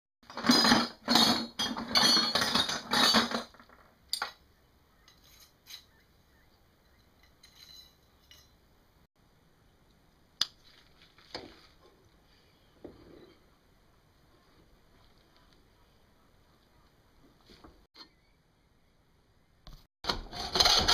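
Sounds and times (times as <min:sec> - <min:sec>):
metal parts clattering in bucket: 0:00.2 - 0:04.4, 0:07.2 - 0:08.5.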